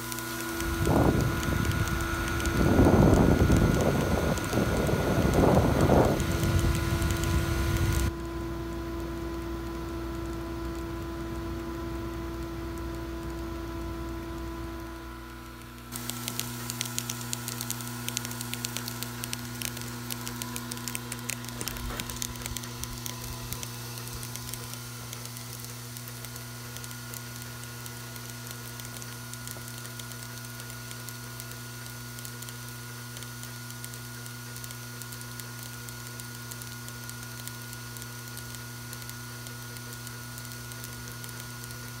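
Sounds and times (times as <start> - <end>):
vibratory bowl feeder humming: 0.0 - 42.0.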